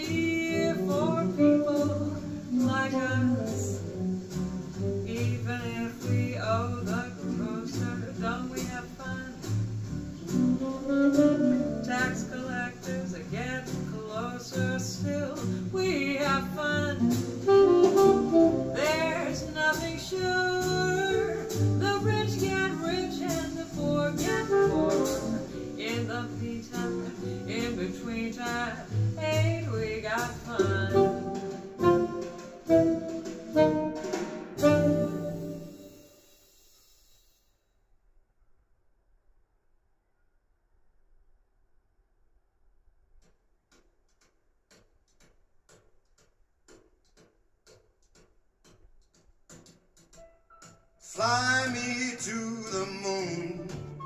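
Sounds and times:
song played through speakers: 50.2s - 54.0s.

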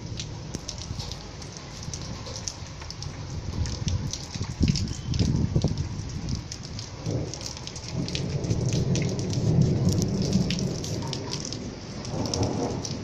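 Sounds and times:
rain falling: 0.0s - 13.0s
thunder rumbling: 3.1s - 13.0s.

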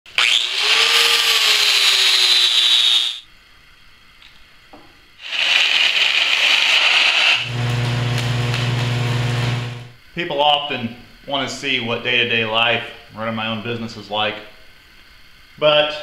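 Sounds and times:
angle grinder grinding metal: 0.1s - 3.2s, 5.2s - 9.9s
steady low hum: 7.4s - 15.6s.

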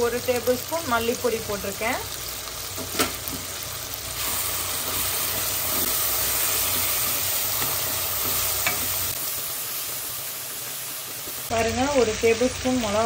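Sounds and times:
spices sizzling in oil: 0.0s - 13.0s.

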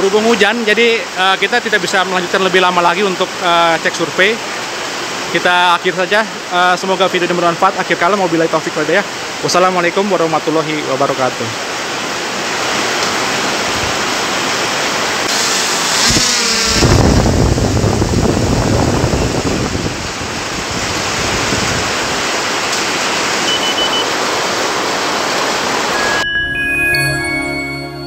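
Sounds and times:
steady rain falling: 0.0s - 15.8s, 16.9s - 26.0s
music jingle with chiming tones: 26.0s - 28.0s.

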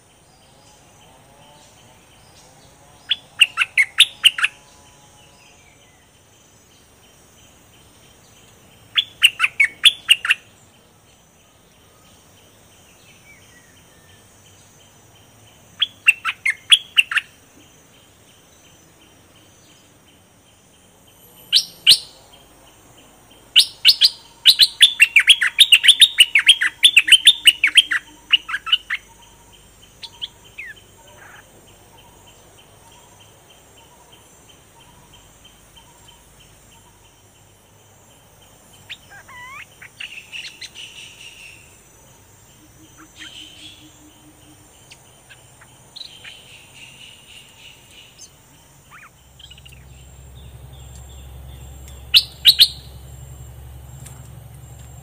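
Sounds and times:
high insect drone: 0.0s - 55.0s
bulbul singing: 7.8s - 10.6s, 21.3s - 37.3s, 38.4s - 55.0s.

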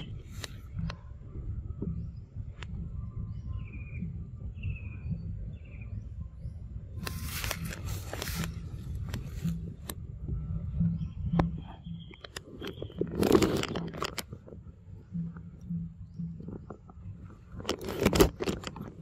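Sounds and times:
rustling and scraping: 0.0s - 1.0s, 7.0s - 10.0s, 10.8s - 19.0s
steady low rumble: 0.0s - 19.0s.

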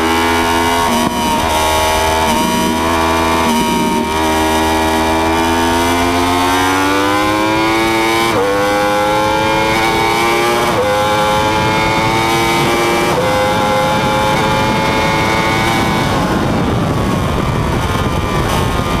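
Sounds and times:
motorcycle engine at full throttle: 0.0s - 19.0s
wind rushing over microphone: 0.0s - 19.0s.

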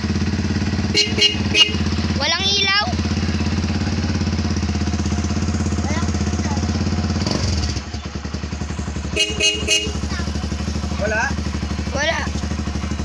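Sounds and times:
motorcycle engine running: 0.0s - 13.0s
horn beeping: 0.8s - 2.1s, 9.0s - 10.2s.

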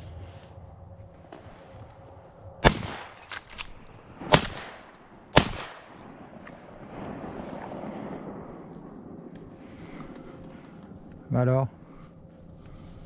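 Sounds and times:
shotgun shots with echo: 2.6s - 3.2s, 4.1s - 6.4s.

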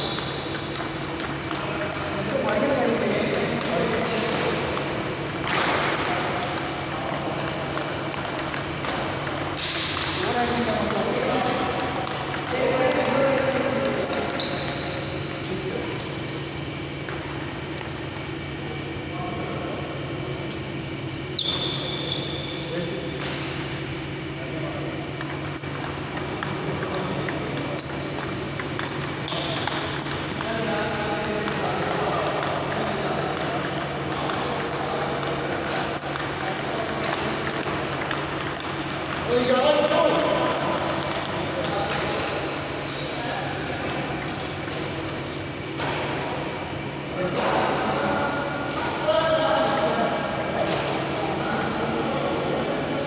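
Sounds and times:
steady low hum: 0.0s - 53.0s
table tennis ball clicks: 25.2s - 42.2s.

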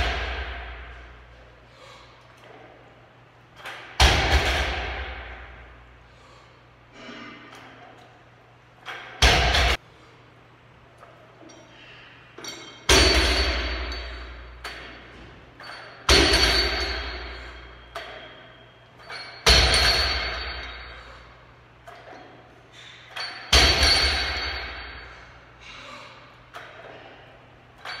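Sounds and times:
bar and plates ringing: 11.4s - 25.4s, 27.7s - 28.0s.

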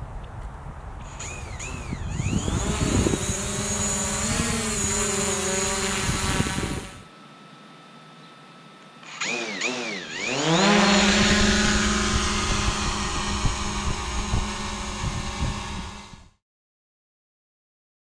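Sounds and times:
drone propellers whining: 1.0s - 7.1s, 8.9s - 16.4s.

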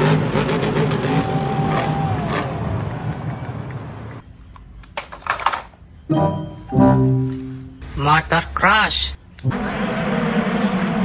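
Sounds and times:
truck engine revving: 0.0s - 2.8s.

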